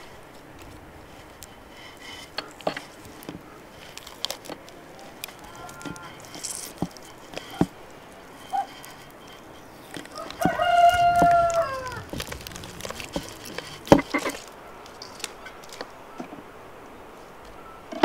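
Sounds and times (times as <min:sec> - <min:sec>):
rooster crowing: 0:10.0 - 0:14.1.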